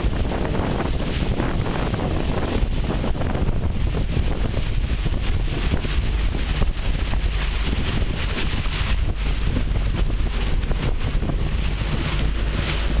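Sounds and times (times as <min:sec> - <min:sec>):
faint hiss of wind and water: 0:00.0 - 0:13.0
wind buffeting microphone: 0:00.0 - 0:13.0.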